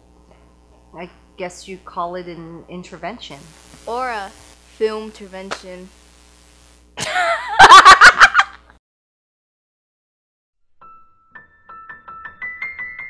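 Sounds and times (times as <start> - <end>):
young woman laughing loudly: 7.0 - 8.8
piano melody of repeated notes: 10.8 - 13.0.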